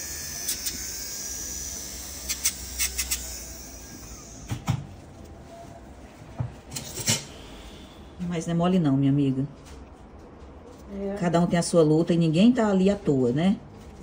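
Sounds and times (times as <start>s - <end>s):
electric nail drill whirring: 0.0s - 4.6s.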